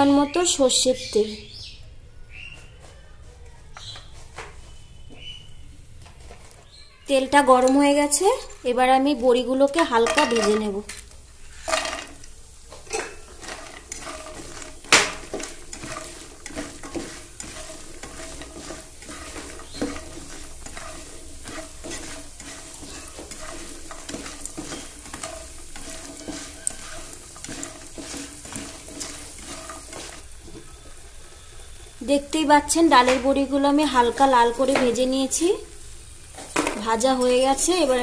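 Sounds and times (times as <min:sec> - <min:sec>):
dumplings sizzling in oil: 0:06.6 - 0:38.0
utensil scraping pan: 0:11.4 - 0:30.3.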